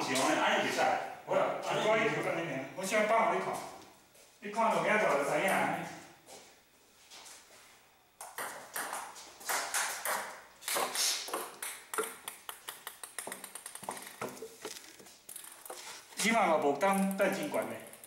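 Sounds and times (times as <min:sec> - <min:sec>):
table tennis ball clicks: 0:08.2 - 0:15.8, 0:16.9 - 0:18.0.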